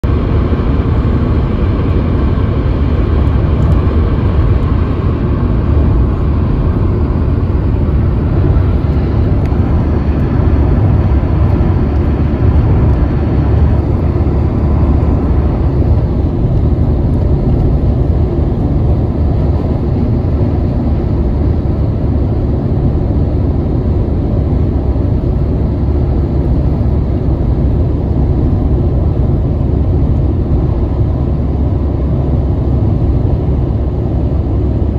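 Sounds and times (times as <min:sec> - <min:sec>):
car road rumble from inside cabin: 0:00.0 - 0:34.9.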